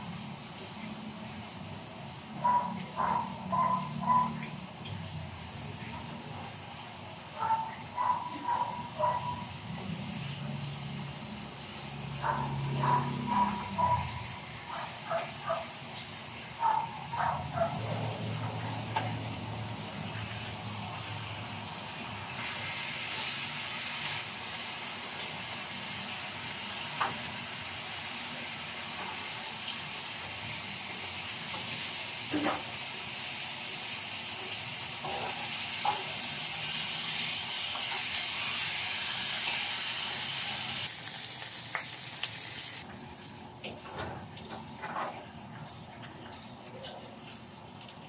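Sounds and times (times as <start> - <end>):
meat sizzling in a pan: 17.8 - 42.8.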